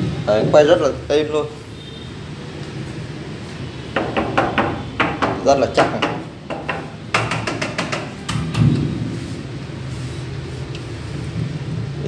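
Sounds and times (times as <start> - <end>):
sharp knocks: 4.0 - 9.0.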